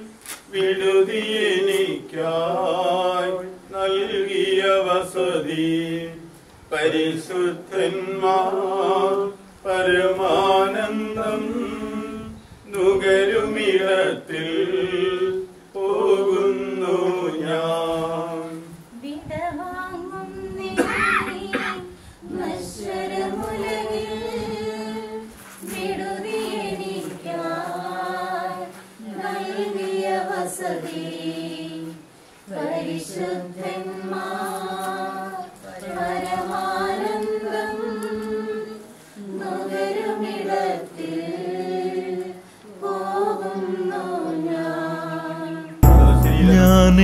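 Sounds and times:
group singing a hymn: 0:00.0 - 0:19.0, 0:19.6 - 0:47.0.

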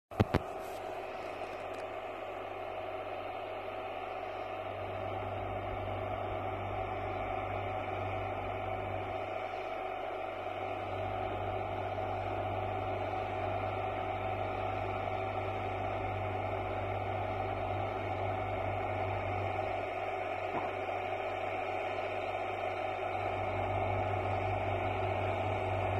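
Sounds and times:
tractor engine running: 0:00.1 - 0:25.9.

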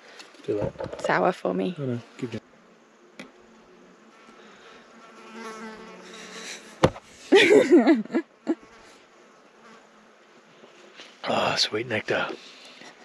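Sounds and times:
fly buzzing: 0:01.8 - 0:07.3, 0:08.2 - 0:11.2.

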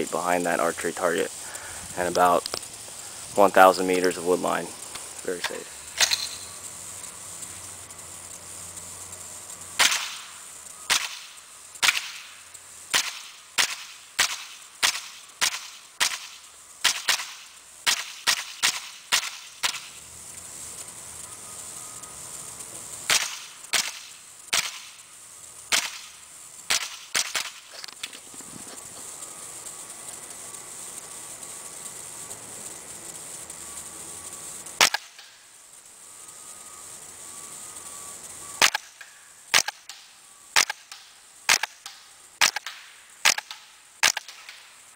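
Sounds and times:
suppressed rifle shots: 0:09.8 - 0:10.3, 0:10.9 - 0:12.3, 0:12.9 - 0:19.9, 0:23.1 - 0:24.9, 0:25.7 - 0:26.1, 0:26.7 - 0:27.6, 0:34.8 - 0:35.2, 0:38.6 - 0:38.9, 0:39.5 - 0:39.9, 0:40.6 - 0:41.8, 0:42.4 - 0:44.6.

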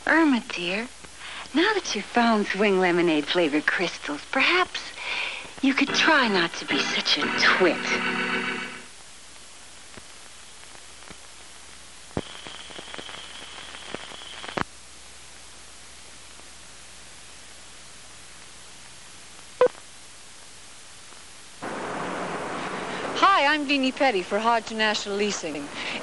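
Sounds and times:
tape hiss: 0:00.0 - 0:26.0
faint high whine: 0:05.7 - 0:09.0, 0:11.4 - 0:14.7
crackling clicks: 0:09.3 - 0:14.7.

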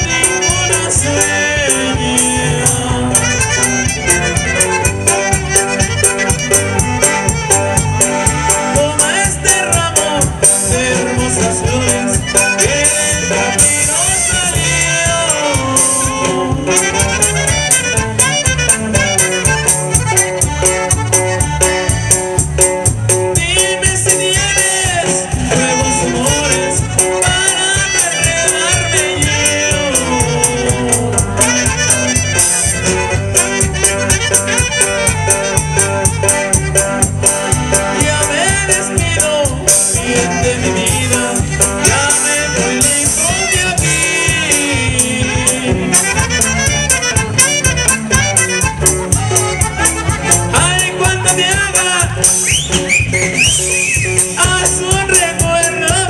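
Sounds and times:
person singing: 0:00.0 - 0:05.7, 0:06.6 - 0:17.3, 0:23.1 - 0:32.0, 0:37.5 - 0:47.0, 0:50.3 - 0:52.4, 0:54.0 - 0:56.0
live band playing: 0:00.0 - 0:56.0.

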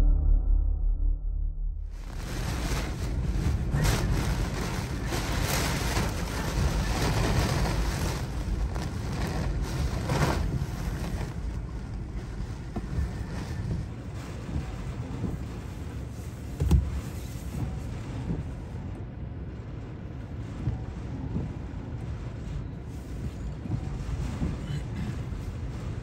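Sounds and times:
strong wind buffeting microphone: 0:01.8 - 0:26.0.

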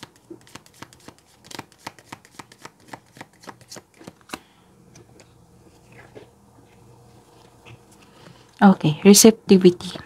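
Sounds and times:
cards being shuffled: 0:00.0 - 0:06.3.

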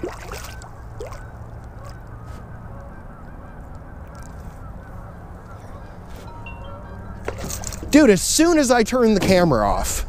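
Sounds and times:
fish splashing in water: 0:00.0 - 0:02.0.

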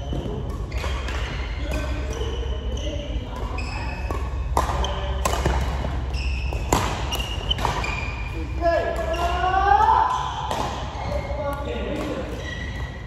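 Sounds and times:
short high squeaks: 0:12.4 - 0:13.0.

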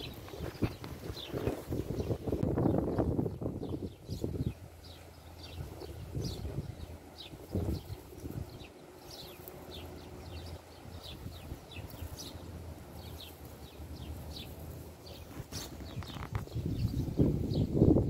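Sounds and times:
small birds chirping: 0:00.0 - 0:18.0
crunching on dry leaves and gravel: 0:07.3 - 0:16.7.

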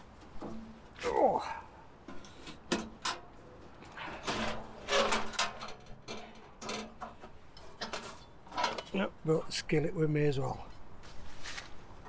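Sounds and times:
metal cookware knocking and scraping: 0:04.2 - 0:09.0.

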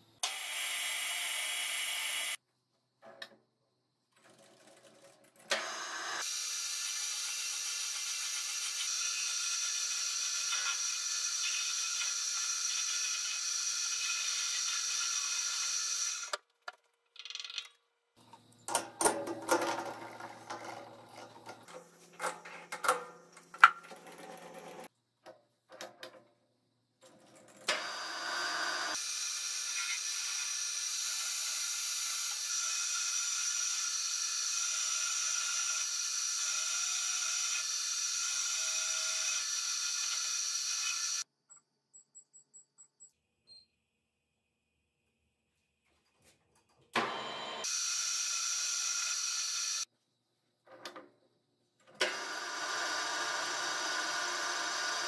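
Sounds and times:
metal lathe whirring: 0:52.0 - 0:55.0.

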